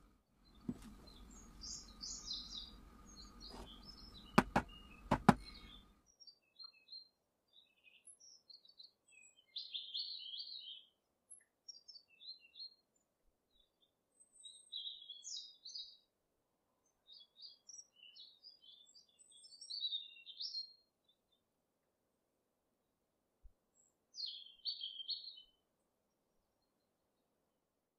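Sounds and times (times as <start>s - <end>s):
small birds chirping: 0.4s - 16.2s, 16.8s - 21.5s, 23.7s - 27.3s
cake tin knocking on table: 4.4s - 5.5s.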